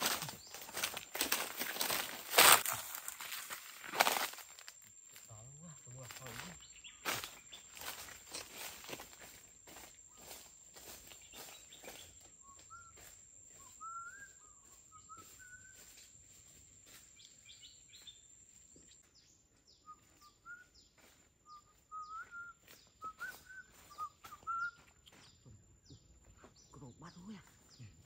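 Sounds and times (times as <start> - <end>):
footsteps in dry leaves: 0.0 - 12.2, 15.2 - 18.8
bird whistling calls: 11.4 - 16.0, 19.7 - 25.4.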